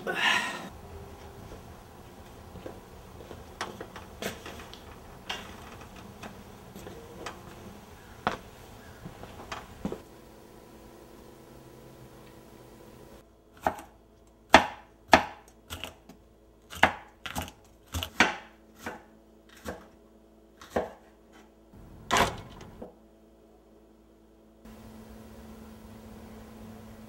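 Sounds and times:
knife chopping on a wooden board: 13.6s - 13.9s, 14.5s - 15.9s, 16.7s - 19.9s, 20.6s - 21.1s.

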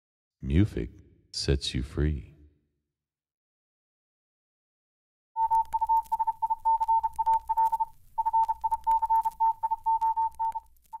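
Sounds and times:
light crackle: 5.4s - 11.0s
morse code beeping: 5.4s - 11.0s.

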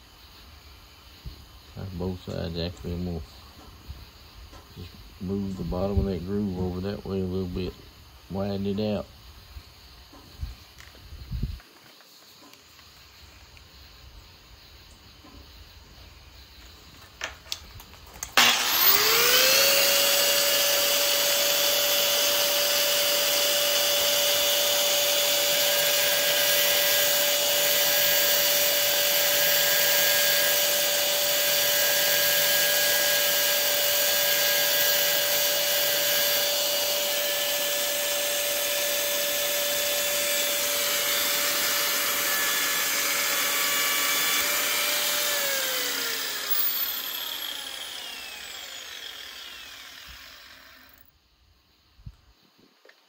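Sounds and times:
power grinder whining: 18.2s - 51.1s.

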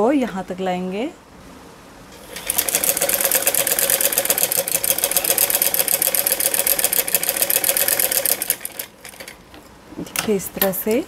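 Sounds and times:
sewing machine stitching: 2.2s - 9.4s.

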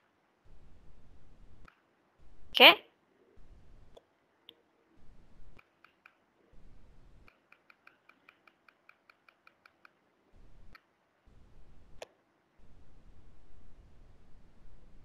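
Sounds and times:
computer mouse clicks: 5.6s - 6.2s, 7.3s - 10.0s
mouse scroll-wheel ticks: 7.3s - 10.0s.

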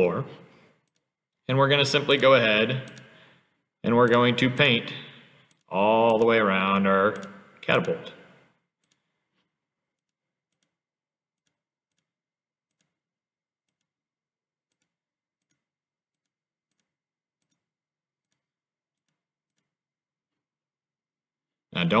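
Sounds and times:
faint computer mouse clicks: 7.1s - 9.0s.

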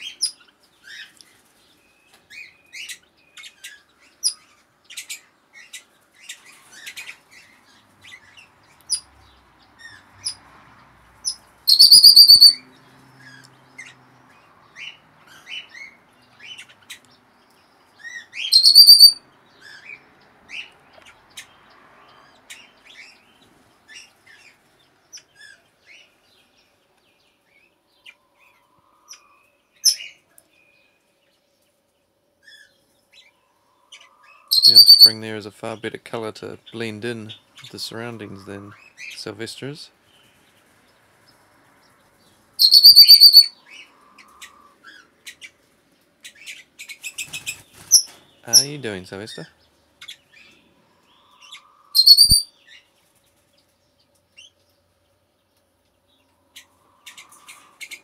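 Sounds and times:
birds chirping: 0.0s - 58.0s
loud harsh bird call: 11.2s - 17.0s, 18.0s - 23.3s, 33.9s - 35.4s, 42.6s - 45.5s, 46.3s - 52.8s.

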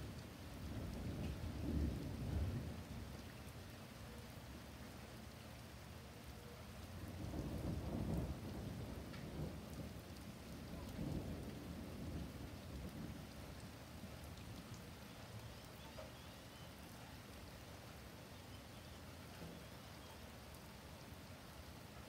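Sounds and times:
steady rain: 0.0s - 22.0s
thunder rumbling: 0.6s - 3.2s, 7.1s - 13.8s.

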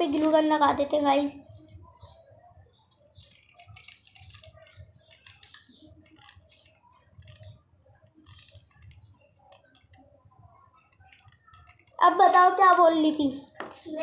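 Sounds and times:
glue gun clicking and crackling: 3.2s - 7.6s, 8.2s - 10.0s, 10.8s - 12.0s.

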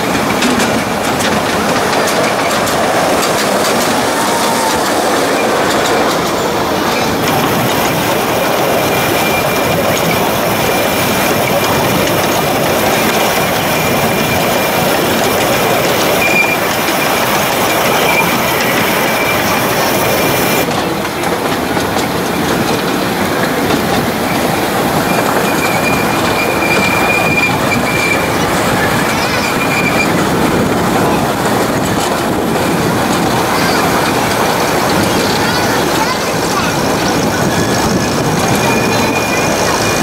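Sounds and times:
high wheel squeal: 0.0s - 21.3s, 22.0s - 40.0s
small train wheels clattering on rail: 0.0s - 40.0s.

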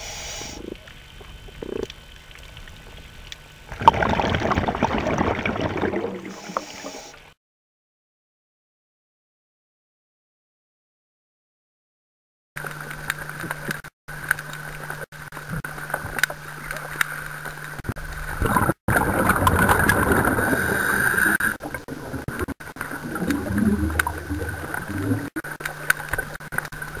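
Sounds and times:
underwater hum: 0.0s - 7.3s, 12.6s - 27.0s
scuba exhaust bubbles gurgling: 3.7s - 7.0s, 17.8s - 27.0s.

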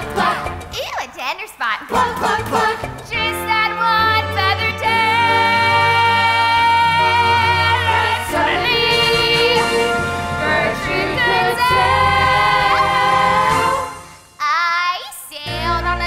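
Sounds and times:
female chorus singing: 1.9s - 14.0s
instrumental accompaniment: 2.0s - 14.4s.

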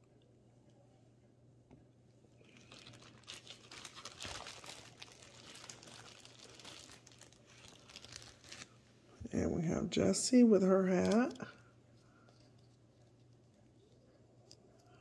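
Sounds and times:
plastic bag crinkling: 2.4s - 8.8s, 10.8s - 11.6s.

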